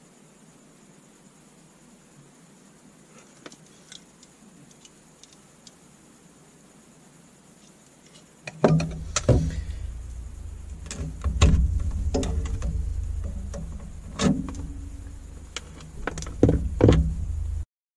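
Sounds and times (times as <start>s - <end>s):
small metal objects knocking on wood: 8.5s - 17.3s
steady low rumble: 8.8s - 17.7s.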